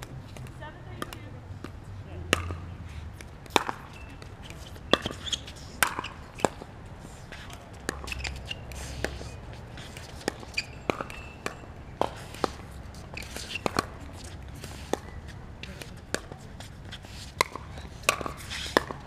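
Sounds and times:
paddles hitting plastic ball: 3.2 - 5.2.

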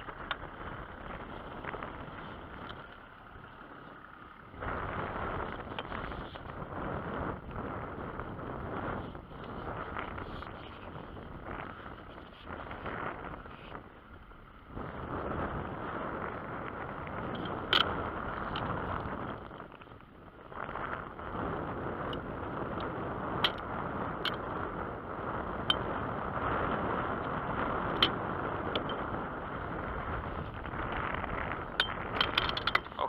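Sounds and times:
rushing wind: 0.0 - 33.0
sharp clicks and knocks: 31.7 - 33.0.

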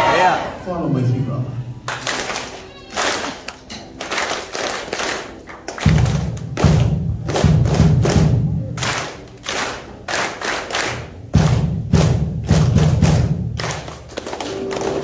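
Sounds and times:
audience clapping in unison: 1.9 - 15.0
deep low cupped claps: 5.7 - 9.6, 10.2 - 15.0.

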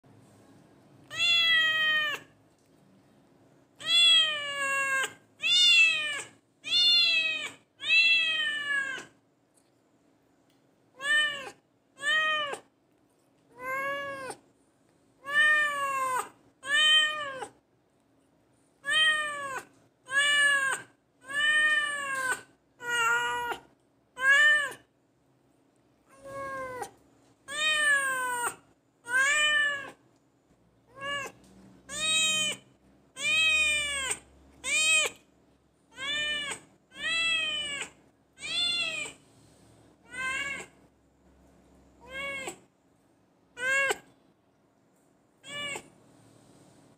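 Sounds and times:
cat meowing: 1.0 - 2.4, 3.8 - 9.2, 11.0 - 12.7, 13.5 - 14.4, 15.2 - 17.6, 18.8 - 23.6, 27.5 - 30.0, 30.9 - 35.2, 35.9 - 39.2, 40.0 - 40.8, 42.0 - 42.6, 43.6 - 44.1, 45.4 - 45.9.

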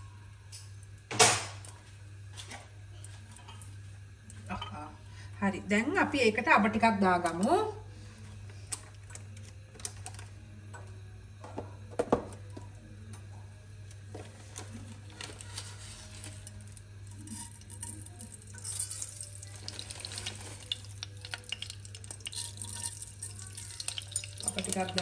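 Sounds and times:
steady low hum: 0.0 - 25.0
seeds sizzling in hot oil: 15.8 - 25.0.

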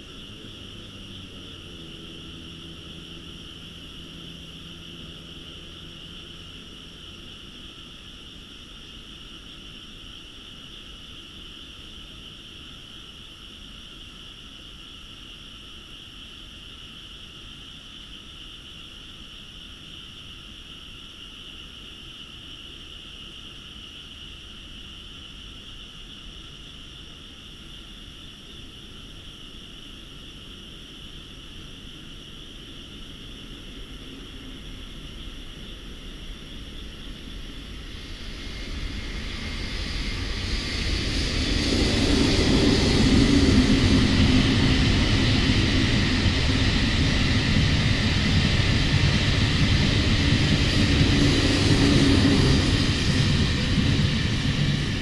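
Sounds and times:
low background rumble: 0.0 - 8.8, 32.8 - 55.0
chorus of frogs: 0.0 - 55.0.

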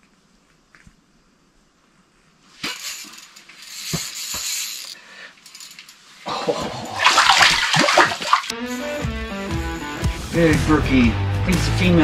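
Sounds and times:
fish thrashing in water: 6.4 - 8.5.

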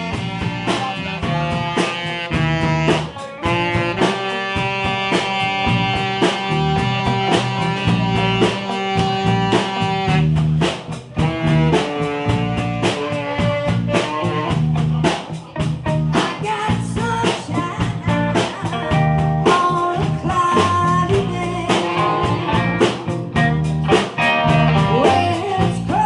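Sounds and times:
saxophone holding notes: 0.0 - 14.9, 21.1 - 25.6
drum kit: 0.0 - 26.0
electric guitars: 0.0 - 26.0.

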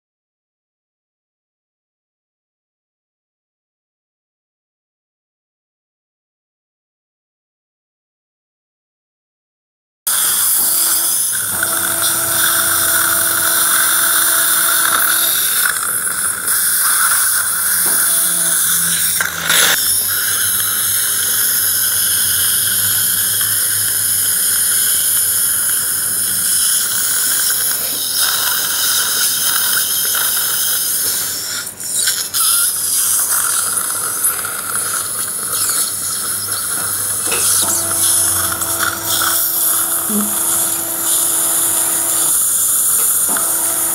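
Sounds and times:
high-pitched surgical drill whine: 10.1 - 43.9.

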